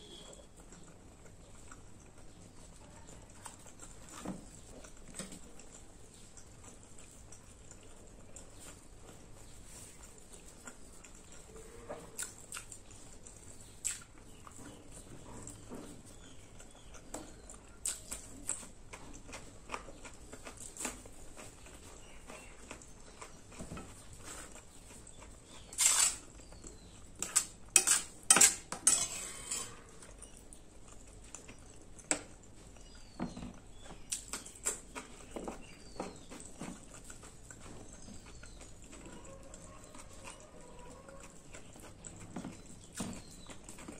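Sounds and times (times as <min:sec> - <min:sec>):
chewing: 0:00.0 - 0:43.9
food scraping on steel plate: 0:25.7 - 0:26.3, 0:27.2 - 0:30.0.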